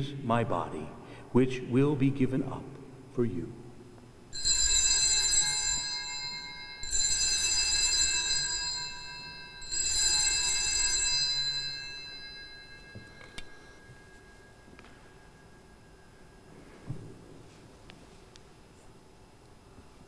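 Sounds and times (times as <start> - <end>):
altar bells ringing: 4.3 - 16.9.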